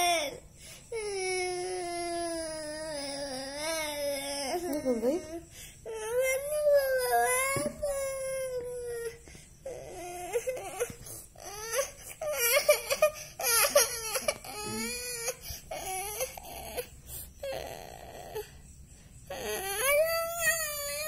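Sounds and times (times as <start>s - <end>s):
boy crying: 5.9s - 16.8s.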